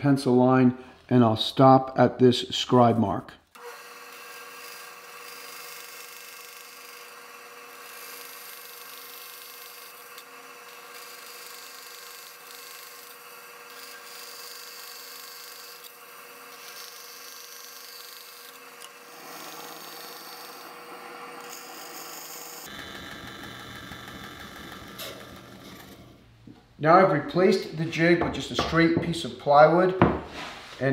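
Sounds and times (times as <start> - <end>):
bandsaw cutting wood: 3.5 - 26.2.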